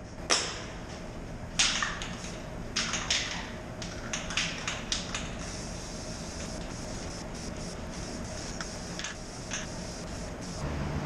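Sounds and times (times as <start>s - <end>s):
aerosol spray hiss: 5.4s - 10.6s.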